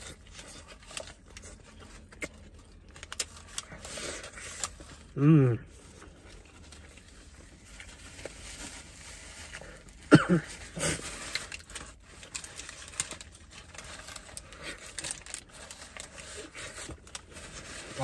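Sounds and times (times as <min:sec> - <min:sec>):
paper wrapper rustling: 0:00.0 - 0:05.1, 0:05.7 - 0:18.0
chewing a burger: 0:00.0 - 0:08.4
short hummed voice: 0:05.2 - 0:05.7.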